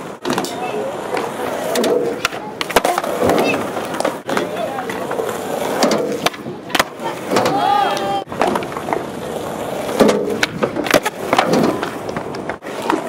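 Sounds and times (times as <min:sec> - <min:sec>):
skateboard deck clacks: 0:00.0 - 0:13.0
skateboard wheels rolling on concrete: 0:00.0 - 0:13.0
person calling out: 0:07.5 - 0:08.3.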